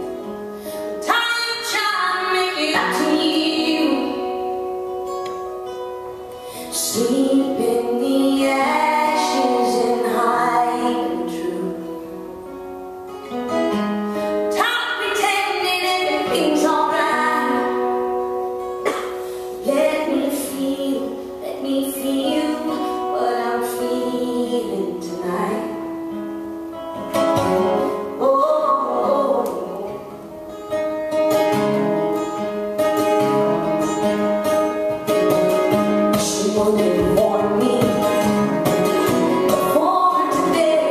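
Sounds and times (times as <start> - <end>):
acoustic guitar: 0.0 - 40.9
woman singing: 0.8 - 4.8, 6.5 - 12.3, 14.4 - 26.2, 27.4 - 30.4, 36.1 - 40.9.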